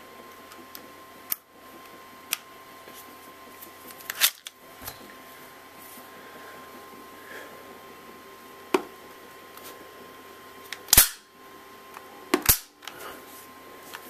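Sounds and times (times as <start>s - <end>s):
airsoft pistol shot: 10.9s - 11.2s, 12.4s - 12.7s.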